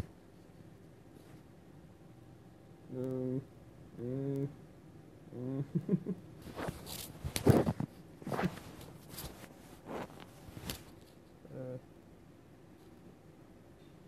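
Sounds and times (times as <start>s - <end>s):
person humming closed-mouth: 2.9s - 4.6s, 5.3s - 6.0s.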